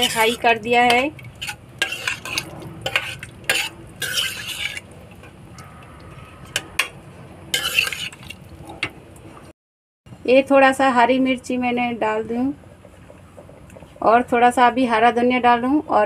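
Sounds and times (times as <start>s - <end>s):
metal spoon scraping pot: 0.0s - 5.4s, 6.3s - 8.4s.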